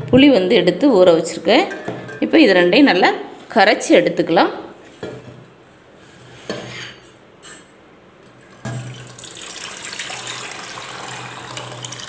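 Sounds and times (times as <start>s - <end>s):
steel vessels knocking: 1.7s - 2.4s
water pouring into metal pot: 8.4s - 12.0s.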